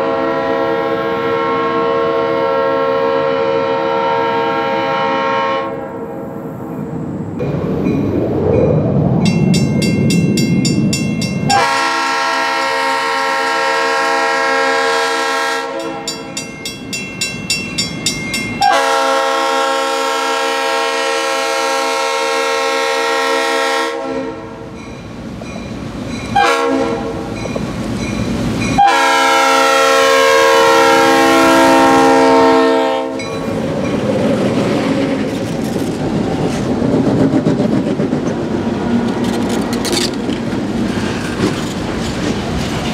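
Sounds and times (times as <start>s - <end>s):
locomotive air horn blasts: 0.0s - 6.0s, 11.5s - 16.1s, 18.6s - 24.7s, 26.4s - 27.3s, 28.8s - 33.3s
crossing bell ringing: 6.8s - 12.0s, 15.7s - 19.2s, 24.7s - 29.6s, 33.1s - 34.3s
train wheels clacking on rails: 27.2s - 28.9s, 33.2s - 42.9s.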